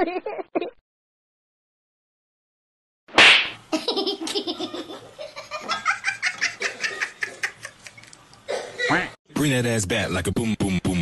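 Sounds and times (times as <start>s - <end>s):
laughter in rapid bursts: 3.7s - 7.9s.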